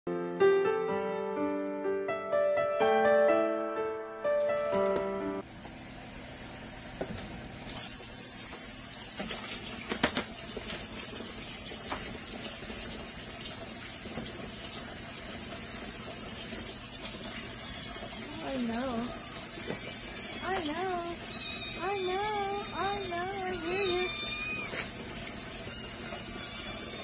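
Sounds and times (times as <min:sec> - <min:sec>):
steady hiss: 0:07.7 - 0:26.8.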